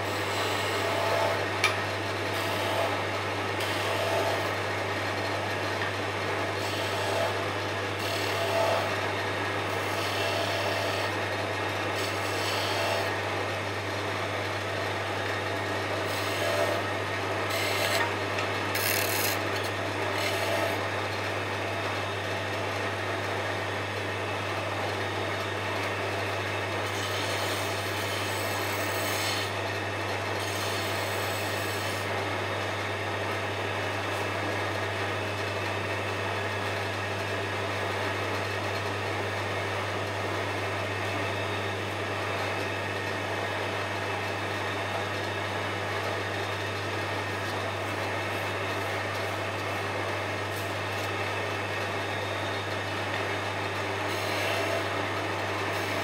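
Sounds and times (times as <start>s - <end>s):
wood lathe humming: 0.0s - 32.6s, 44.1s - 56.0s
turning tool scraping wood: 9.7s - 11.2s, 12.0s - 13.2s, 17.5s - 20.8s, 26.8s - 29.5s, 30.4s - 32.2s.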